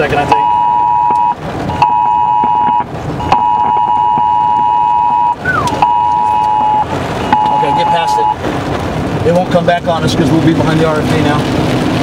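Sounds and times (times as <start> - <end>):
rain: 0.0 - 12.0
electronic alert tone: 0.3 - 8.4.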